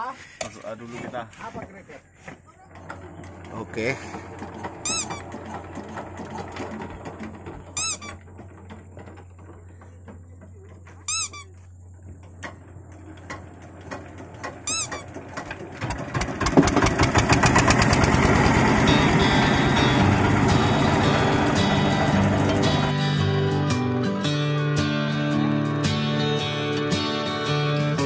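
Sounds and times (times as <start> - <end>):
diesel boat engine chugging: 2.6 - 10.7, 12.6 - 27.9
short high squeaks: 4.4 - 8.5, 11.0 - 11.7, 14.4 - 15.4.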